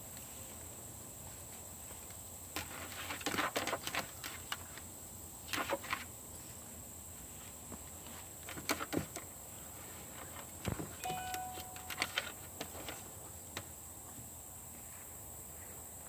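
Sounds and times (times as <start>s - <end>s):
high steady tone: 11.0s - 12.4s.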